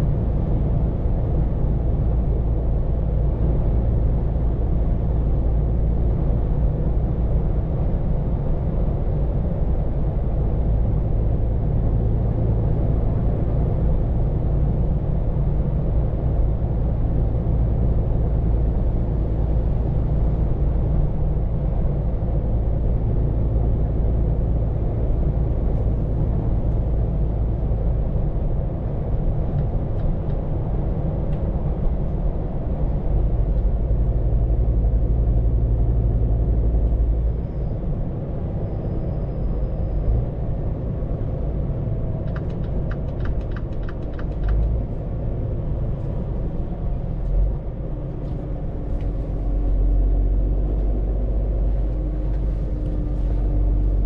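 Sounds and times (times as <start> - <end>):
road and tyre noise: 0.0 - 54.0
truck engine drone: 0.0 - 54.0.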